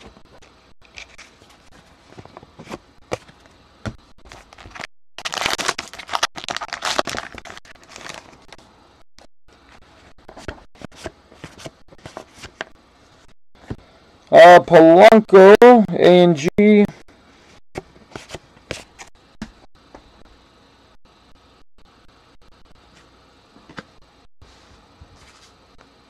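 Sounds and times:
wrapper tearing and crinkling: 0:04.4 - 0:08.4.

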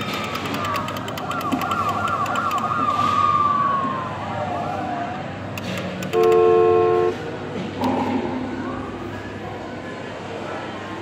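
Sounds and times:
electronic siren warbling: 0:01.0 - 0:05.1
loud steady horn blast: 0:06.1 - 0:07.3.

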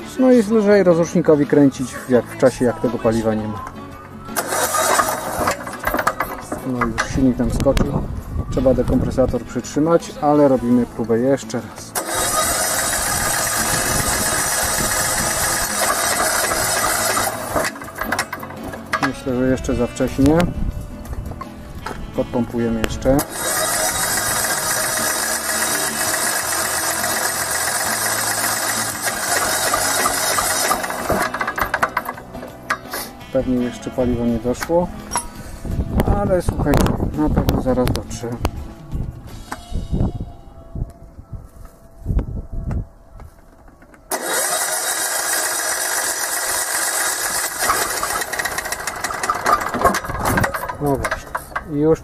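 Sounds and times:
engine spinning down: 0:04.3 - 0:06.8, 0:12.0 - 0:19.1, 0:23.2 - 0:32.6, 0:44.1 - 0:51.7
electric starter cranking diesel engine: 0:04.3 - 0:07.8, 0:11.9 - 0:19.3, 0:23.0 - 0:33.1, 0:43.8 - 0:51.8.

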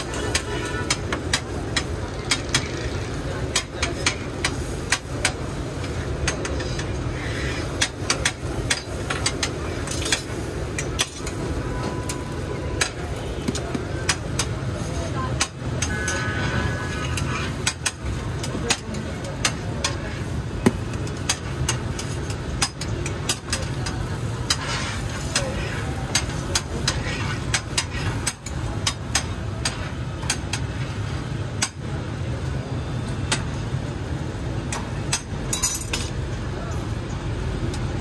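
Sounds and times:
metal spatula scraping steel griddle: 0:00.0 - 0:13.2, 0:14.1 - 0:31.0.

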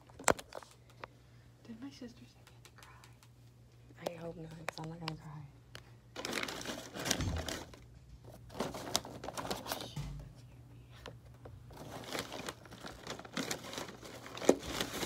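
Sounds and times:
rustling and crinkling: 0:04.5 - 0:15.0.

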